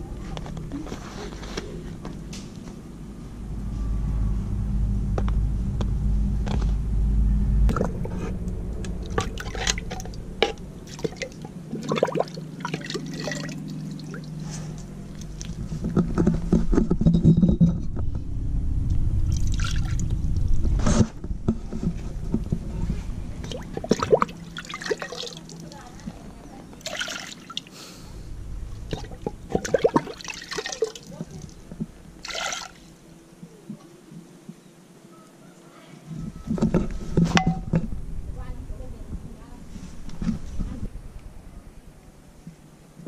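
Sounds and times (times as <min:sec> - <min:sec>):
water sloshing and pouring: 0:09.0 - 0:16.3, 0:19.2 - 0:20.6, 0:23.3 - 0:27.7, 0:28.7 - 0:33.0.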